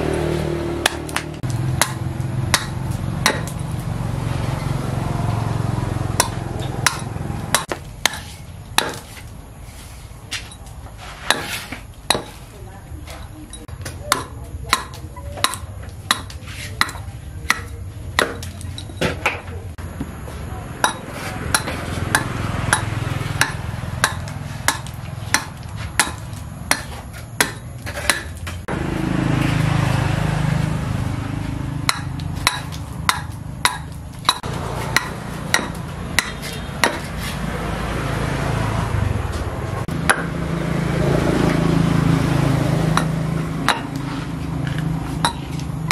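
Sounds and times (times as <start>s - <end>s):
hatchet chopping wood: 0.2s - 3.9s, 6.0s - 9.4s, 11.2s - 12.5s, 13.6s - 20.1s, 20.8s - 28.8s, 31.5s - 37.4s, 39.8s - 40.6s, 42.9s - 45.9s.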